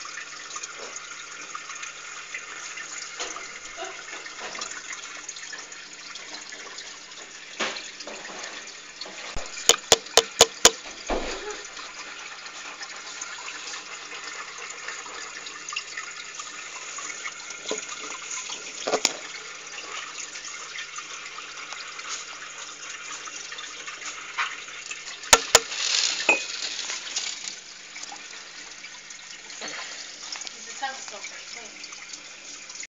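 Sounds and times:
short clicks: 9.6 - 10.8.

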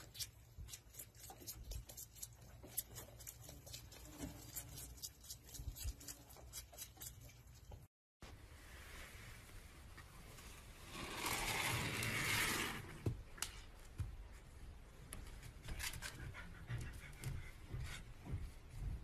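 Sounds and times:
animal panting: 15.8 - 18.7.

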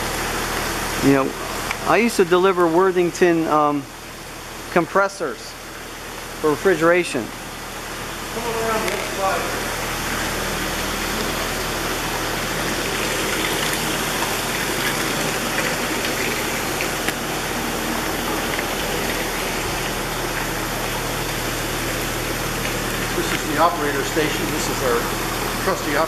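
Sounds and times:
large stationary engine running: 5.8 - 26.0.

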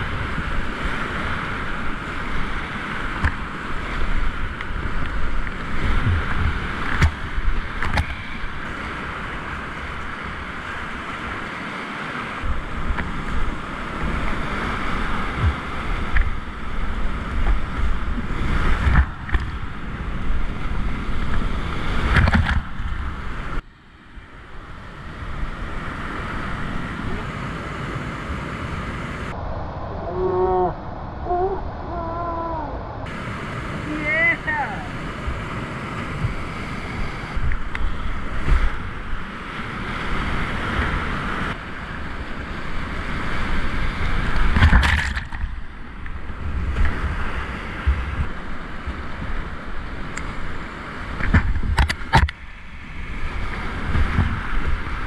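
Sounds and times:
whitewater rapids rushing: 32.0 - 51.3.

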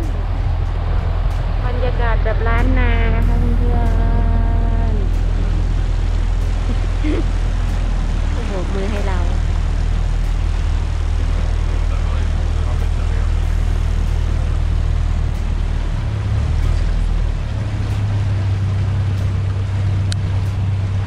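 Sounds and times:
boat engine droning: 0.0 - 21.0
rushing water: 0.0 - 21.0
wind: 0.0 - 21.0.

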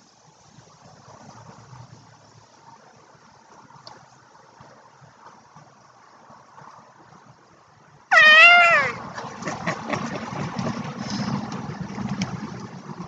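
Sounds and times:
cat meowing: 8.1 - 9.0.

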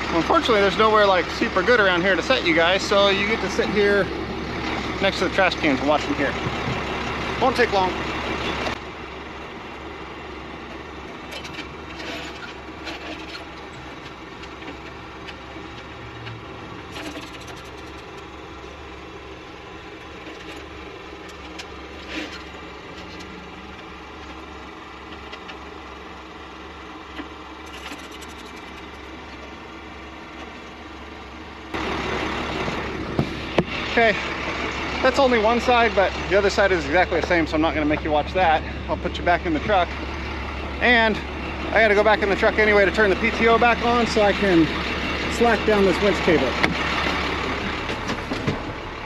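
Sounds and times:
tow truck engine idling: 0.0 - 49.0
tie-down straps clicking and clanking: 11.2 - 18.3, 20.0 - 24.4, 27.1 - 29.2.

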